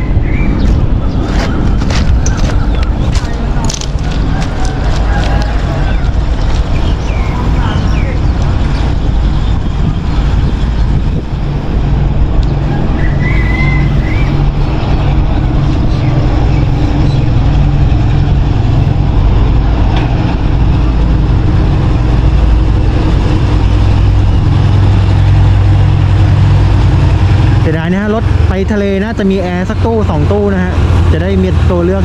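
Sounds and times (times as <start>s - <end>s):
diesel locomotive engine hum: 0.0s - 32.0s
high squeal: 12.6s - 14.8s.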